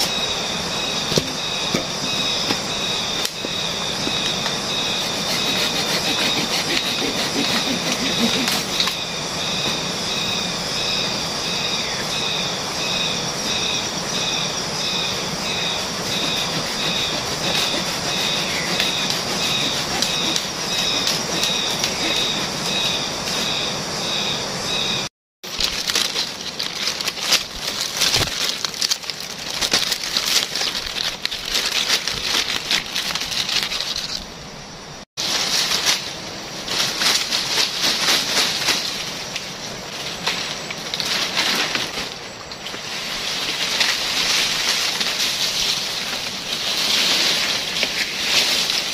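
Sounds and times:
dry leaves and sticks crackling: 0:02.3 - 0:09.6, 0:13.5 - 0:23.4, 0:25.4 - 0:34.3, 0:35.2 - 0:48.9.

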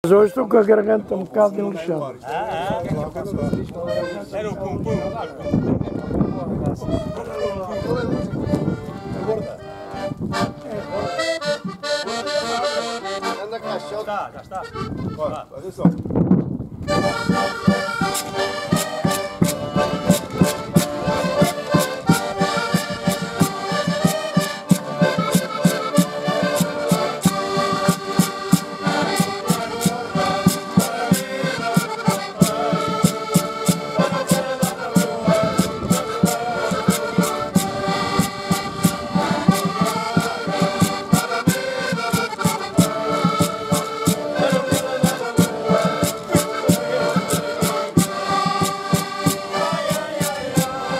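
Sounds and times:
button accordions playing: 0:03.3 - 0:15.4, 0:16.9 - 0:50.9
percussion strikes: 0:17.0 - 0:50.9.

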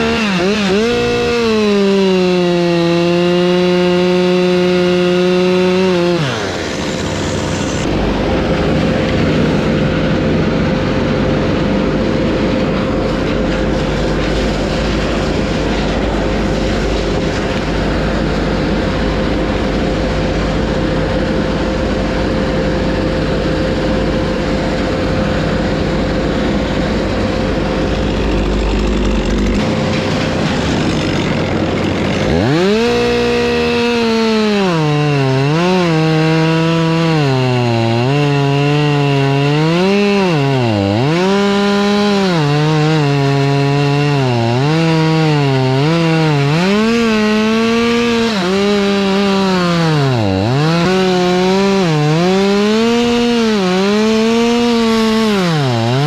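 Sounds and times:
chainsaw cutting wood: 0:00.0 - 0:56.0
low engine rumble: 0:06.5 - 0:32.6.

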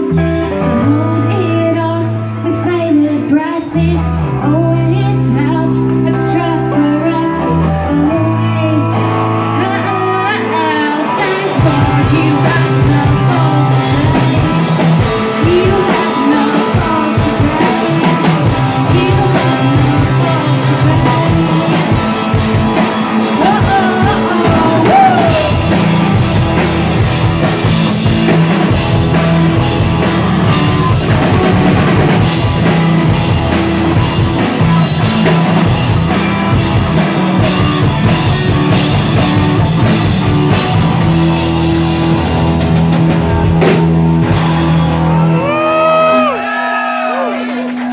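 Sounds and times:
distorted electric guitar: 0:00.0 - 0:46.4
bass guitar: 0:00.0 - 0:47.9
drum kit: 0:11.0 - 0:46.5.

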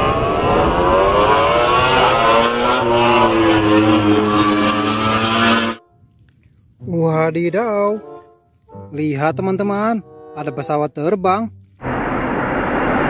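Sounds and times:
engine revving: 0:00.0 - 0:05.8.

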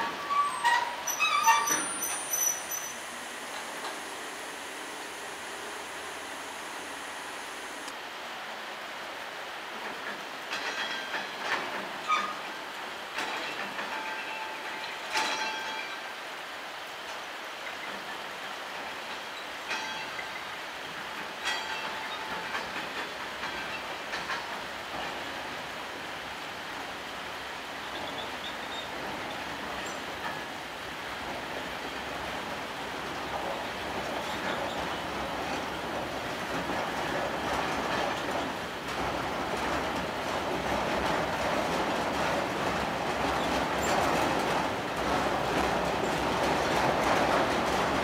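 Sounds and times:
high metallic squeals: 0:00.0 - 0:05.5
train wheels clanking on rails: 0:00.0 - 0:07.9, 0:09.7 - 0:48.0.

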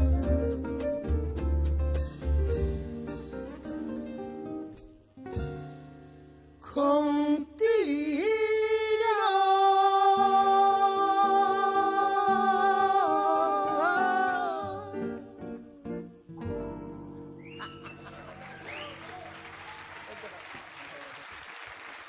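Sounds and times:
double bass: 0:00.0 - 0:06.6
piano: 0:00.0 - 0:20.0.

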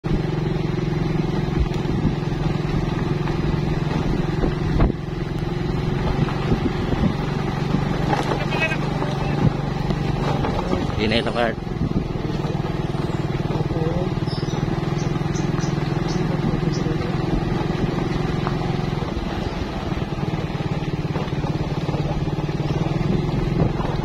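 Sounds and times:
motorcycle engine running: 0:00.0 - 0:24.0
road and wind noise: 0:00.0 - 0:24.0.

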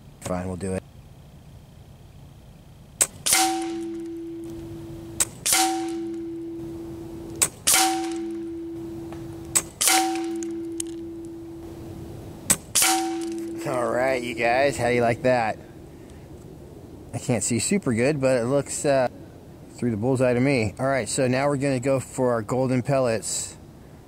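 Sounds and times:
air rifle shots: 0:03.0 - 0:13.8.

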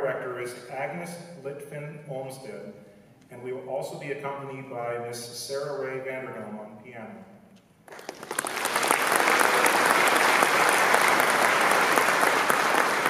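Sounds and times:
audience applauding: 0:07.9 - 0:13.0.

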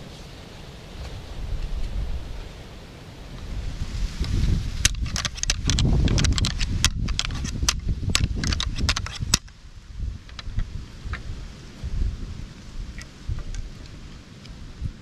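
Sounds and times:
wind rumble on microphone: 0:00.0 - 0:15.0
antlers rattling together: 0:04.8 - 0:09.4.

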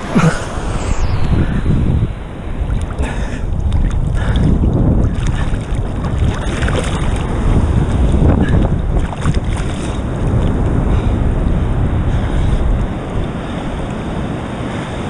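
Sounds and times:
wind buffeting microphone: 0:00.0 - 0:15.0
seawater sloshing and splashing: 0:05.1 - 0:07.5, 0:09.0 - 0:10.0.

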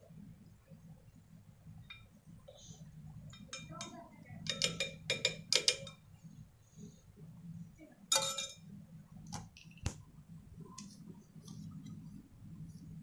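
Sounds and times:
metal spoon clinking on glass: 0:03.3 - 0:06.0, 0:08.1 - 0:08.6.

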